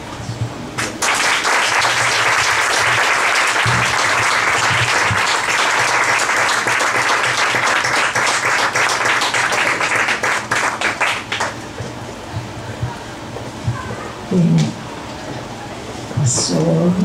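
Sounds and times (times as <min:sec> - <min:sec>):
audience applauding: 0:00.8 - 0:11.6.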